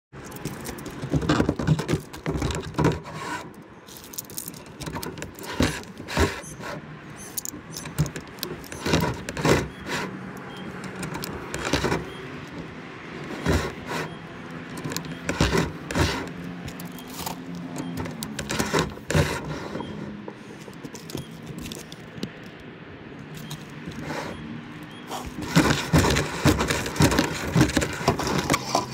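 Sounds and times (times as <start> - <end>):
rod clattering and scraping: 0.2 - 10.2, 13.2 - 22.6, 25.1 - 28.9.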